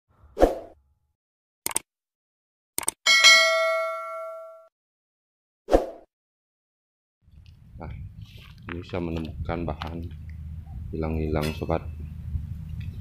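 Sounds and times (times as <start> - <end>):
click sound effects: 1.7 - 1.9, 2.8 - 3.0
notification bell ding: 3.1 - 4.7.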